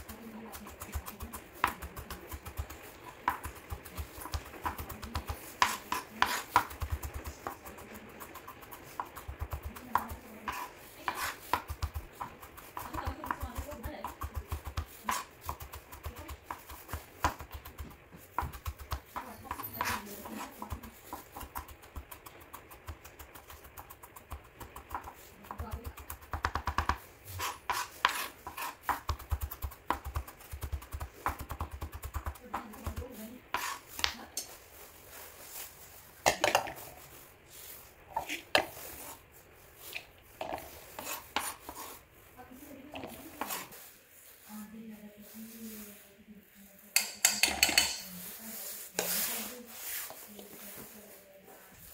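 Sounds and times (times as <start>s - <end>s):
knife chopping on plastic board: 0.0s - 34.5s, 38.1s - 39.2s, 39.8s - 42.0s, 42.9s - 43.7s.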